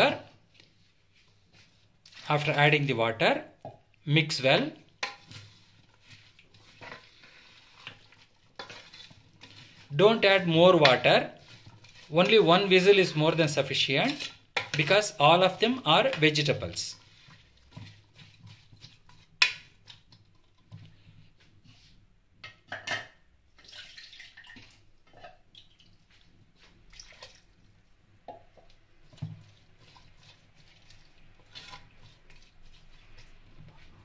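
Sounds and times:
plastic spoon scraping metal pot: 5.0s - 13.3s.

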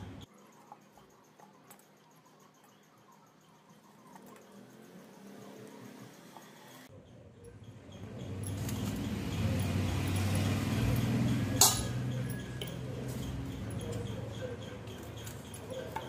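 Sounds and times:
sharp clink: 7.5s - 14.2s.

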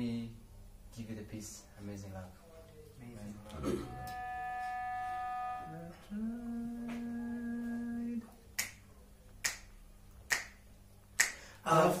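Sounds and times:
sung note held steady: 3.3s - 8.0s
finger snaps: 8.5s - 11.5s.

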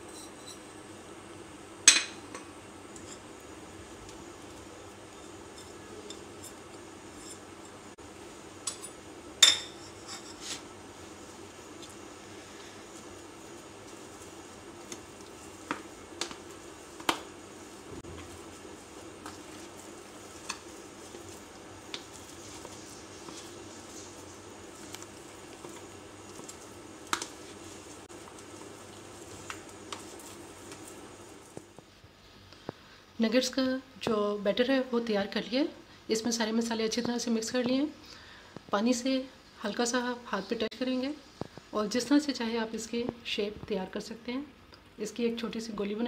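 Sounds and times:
faint steady hum: 0.0s - 46.0s
spoon stirring minced meat: 9.8s - 31.0s.

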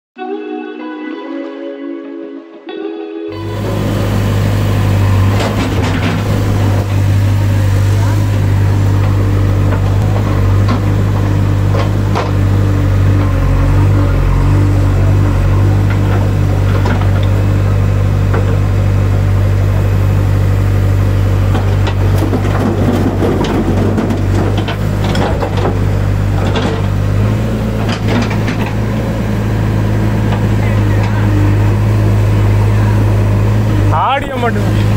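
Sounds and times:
toy engine idle drone: 3.3s - 11.6s.

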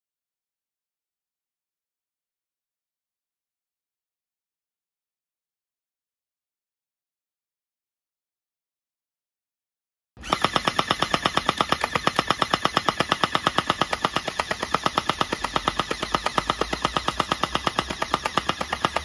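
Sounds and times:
toy blaster firing full auto: 10.2s - 19.0s.

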